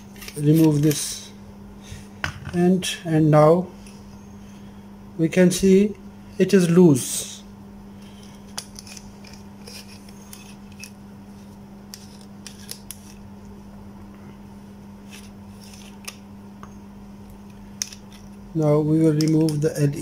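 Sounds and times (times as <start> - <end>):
steady low hum: 0.0 - 20.0
small metal clicks and scrapes: 8.2 - 11.0.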